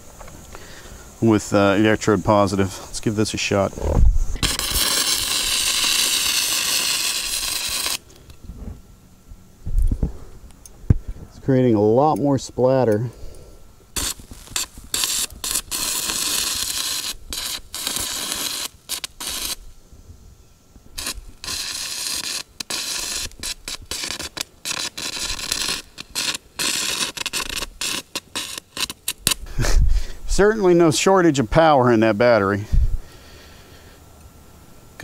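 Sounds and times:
welding arc crackling and hissing: 0:00.0 - 0:08.8, 0:09.6 - 0:34.0.

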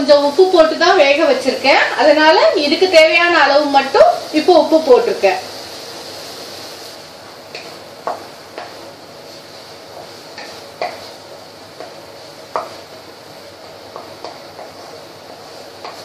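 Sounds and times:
paste sizzling in oil: 0:00.7 - 0:16.0
wooden spatula scraping a pan: 0:07.5 - 0:12.9, 0:13.9 - 0:16.0.

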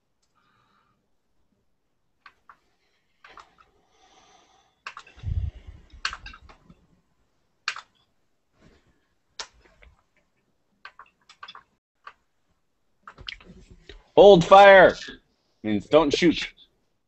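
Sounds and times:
computer clicks: 0:07.6 - 0:08.1.

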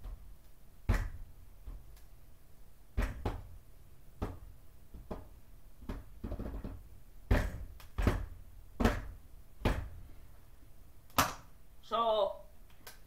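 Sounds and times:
kitchen items knocking and clunking: 0:04.2 - 0:10.0.

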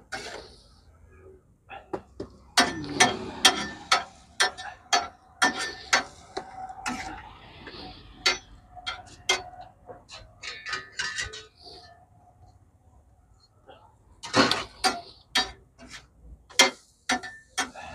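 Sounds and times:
steel spatulas tapping on griddle: 0:02.5 - 0:07.0, 0:16.5 - 0:17.8.

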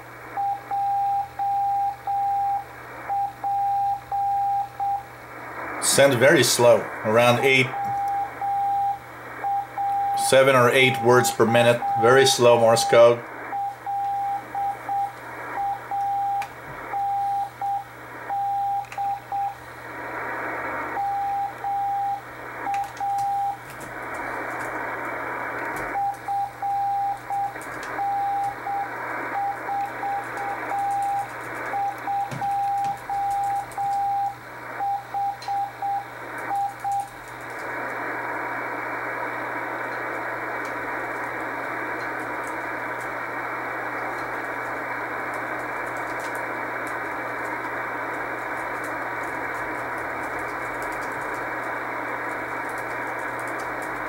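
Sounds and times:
radio static hiss: 0:00.0 - 0:54.0
morse code beeps: 0:00.4 - 0:05.1, 0:07.2 - 0:19.6, 0:21.0 - 0:23.6, 0:26.0 - 0:37.1.

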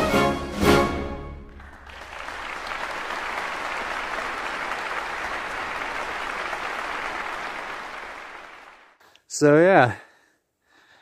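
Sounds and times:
instrumental background music: 0:00.0 - 0:01.5.

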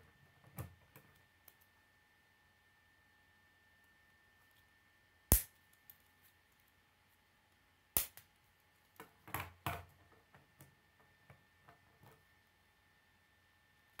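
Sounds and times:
plastic pieces snapping together: 0:05.3 - 0:06.0, 0:08.0 - 0:08.3.

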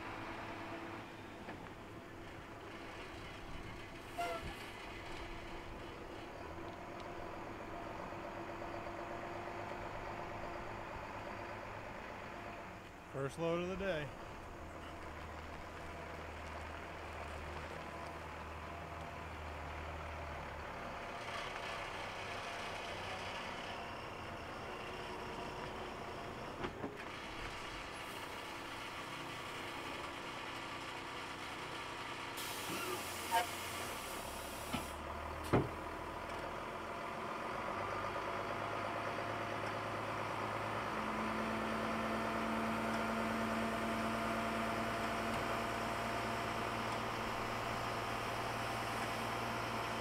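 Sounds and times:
diesel truck engine running: 0:00.0 - 0:50.0
short hiss: 0:32.4 - 0:35.0.

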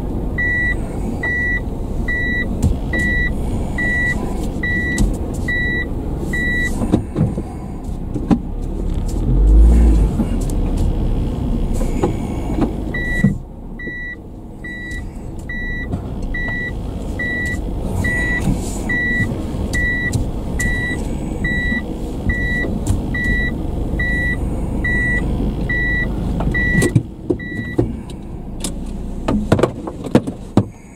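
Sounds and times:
low car rumble: 0:00.0 - 0:30.9
reverse warning beeps: 0:00.4 - 0:06.8, 0:12.9 - 0:27.8.

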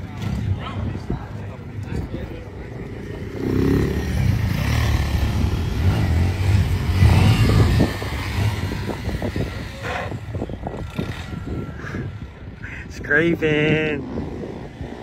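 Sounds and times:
motorcycle engine revving: 0:02.8 - 0:12.4.

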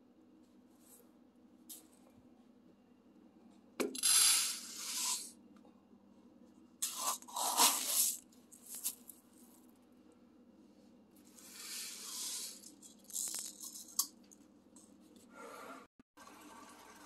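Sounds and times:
dry rice rattling and pouring: 0:06.8 - 0:09.2, 0:11.4 - 0:13.8.

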